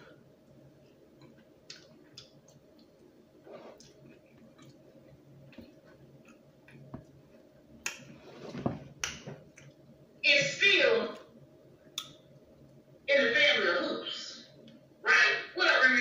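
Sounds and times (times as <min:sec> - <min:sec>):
person chewing food: 0:00.0 - 0:08.5
wet mouth clicks and smacks: 0:01.2 - 0:03.0, 0:11.9 - 0:12.2.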